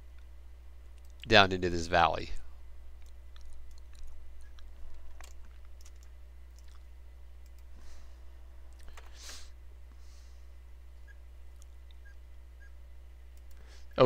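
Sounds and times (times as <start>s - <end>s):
low electrical hum: 0.0s - 14.0s
soft hiss: 0.0s - 14.0s
computer mouse and keyboard clicks: 3.0s - 6.8s.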